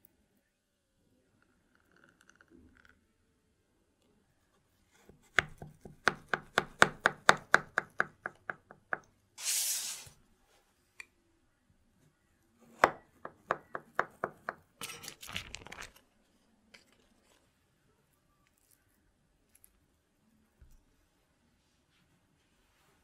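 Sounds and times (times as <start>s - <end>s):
parchment paper rustling: 14.8s - 16.1s.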